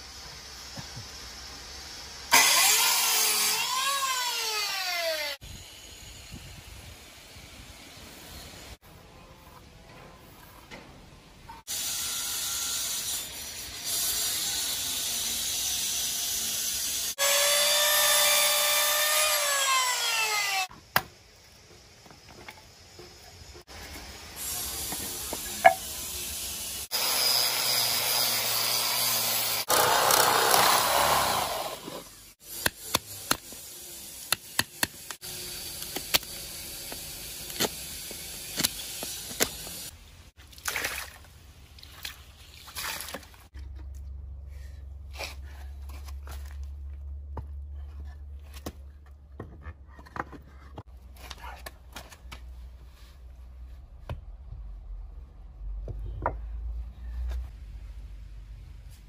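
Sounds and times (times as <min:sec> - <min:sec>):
miter saw cutting wood: 0:02.3 - 0:05.4, 0:11.7 - 0:20.7, 0:24.4 - 0:37.5.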